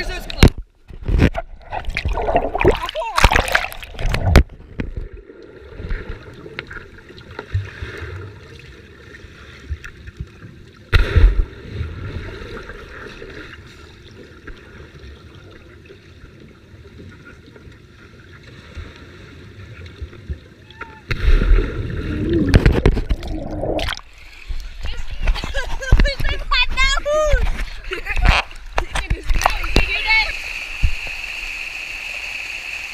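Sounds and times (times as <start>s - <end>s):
underwater splash surge: 1.6s - 8.4s, 10.9s - 13.4s, 21.1s - 24.2s.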